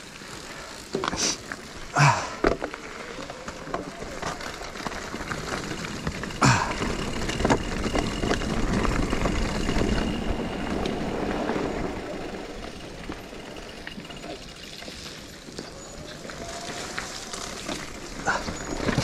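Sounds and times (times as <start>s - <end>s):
bike chain clicks: 0.0s - 19.0s
bike tyres rumbling and rattling: 0.0s - 19.0s
bike knocking on bumps: 2.0s - 15.2s.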